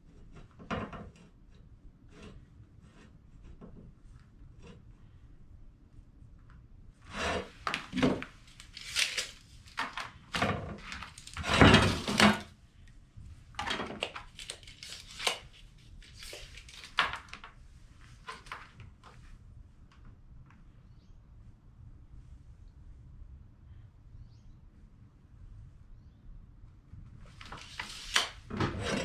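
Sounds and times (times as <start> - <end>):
metal straight edge scraping on wood: 7.1 - 8.2, 11.2 - 12.4, 27.8 - 29.0.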